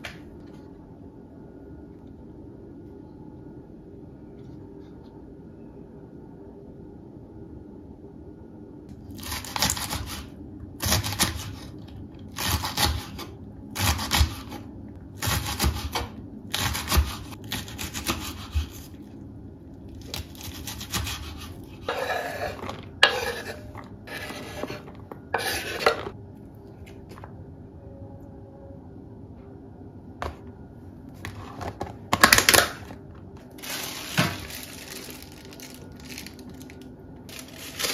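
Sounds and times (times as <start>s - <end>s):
knife scraping cutting board: 20.4s - 26.1s.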